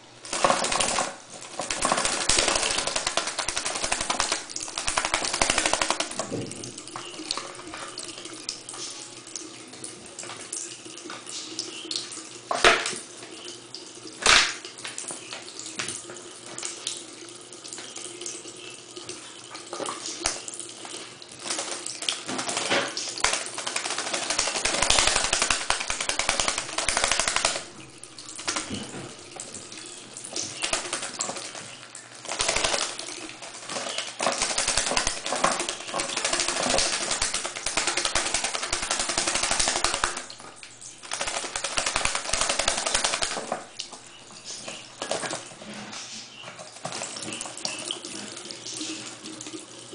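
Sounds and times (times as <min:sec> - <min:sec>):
bird splashing and fluttering: 0:00.0 - 0:09.0, 0:19.7 - 0:49.1
tap water running into sink: 0:00.2 - 0:45.7, 0:46.6 - 0:49.9.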